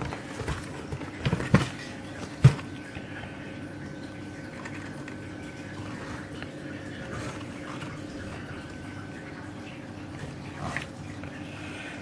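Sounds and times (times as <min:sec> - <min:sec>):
cardboard box knocks and bumps: 0:00.0 - 0:01.8, 0:02.4 - 0:02.7
faint steady hum: 0:00.0 - 0:12.0.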